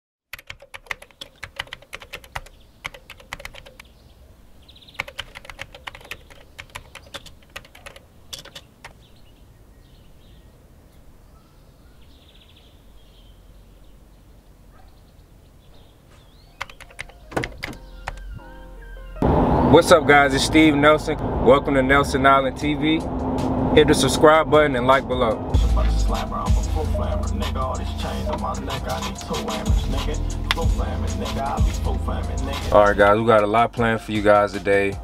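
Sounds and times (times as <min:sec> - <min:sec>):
rapid keyboard typing clicks: 0:00.3 - 0:03.9, 0:05.0 - 0:09.0, 0:16.6 - 0:18.3.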